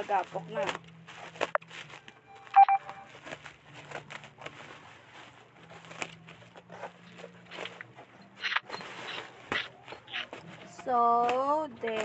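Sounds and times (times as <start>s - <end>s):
bubble wrap crackling: 0.0s - 12.0s
short electronic tone: 2.5s - 3.1s.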